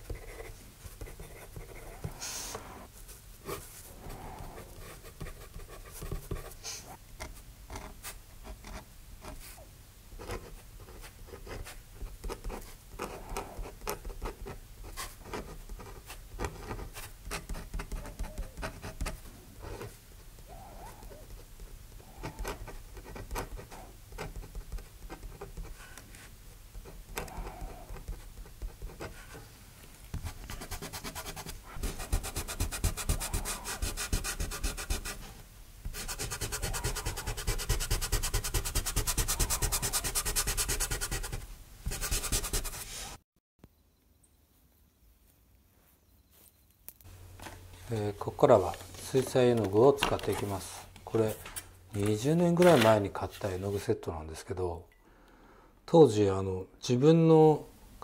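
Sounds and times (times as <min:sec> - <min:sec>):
pen scratching on paper: 0:00.0 - 0:02.8, 0:04.4 - 0:06.6, 0:10.2 - 0:20.0, 0:21.0 - 0:26.0, 0:26.7 - 0:29.4, 0:30.2 - 0:35.3, 0:35.9 - 0:43.0
eraser rubbing on paper: 0:10.3 - 0:20.0, 0:20.8 - 0:26.3, 0:30.2 - 0:35.3, 0:35.9 - 0:43.2.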